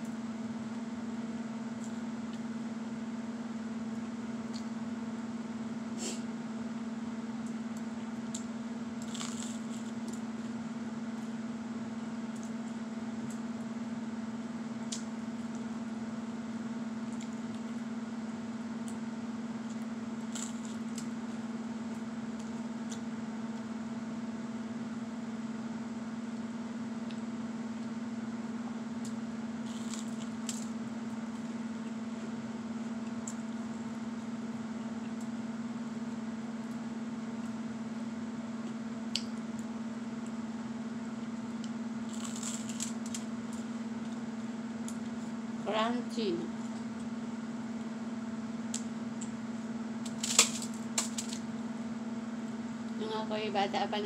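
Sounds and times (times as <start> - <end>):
steady low hum: 0.0 - 54.0
toast crunching while chewed: 8.3 - 10.6, 19.7 - 21.4, 29.6 - 32.3, 41.5 - 45.2, 50.0 - 51.5.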